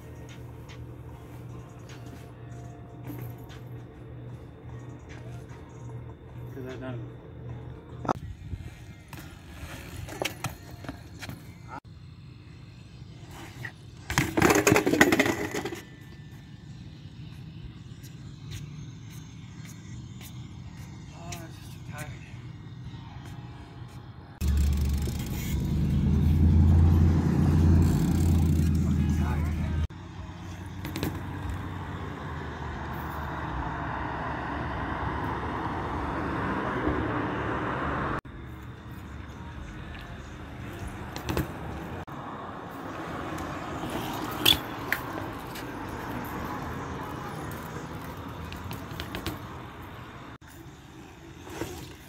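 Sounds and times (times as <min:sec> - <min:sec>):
outdoor rushing noise: 0:08.2 - 0:52.0
bike clattering on concrete: 0:09.1 - 0:11.5, 0:13.4 - 0:15.9, 0:30.8 - 0:31.6, 0:41.1 - 0:41.6, 0:43.3 - 0:46.2, 0:47.2 - 0:49.6.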